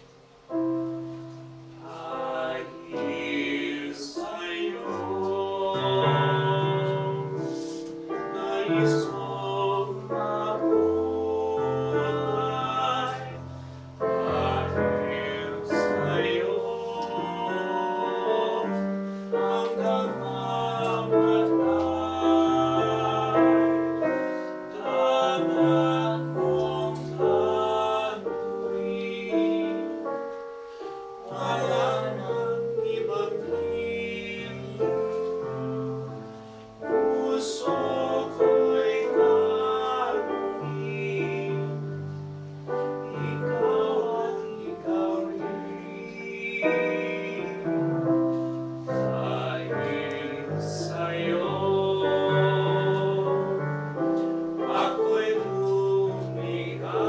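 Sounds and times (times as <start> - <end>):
piano accompaniment: 0.0 - 57.0
men singing operatically: 1.8 - 30.1, 31.2 - 57.0.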